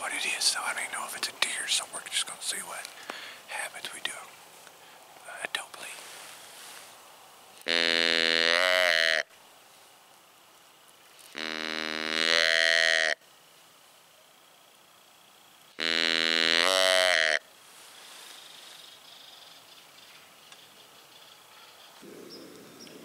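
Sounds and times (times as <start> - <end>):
deer call bleats: 7.7 - 9.3, 11.4 - 13.2, 15.8 - 17.4.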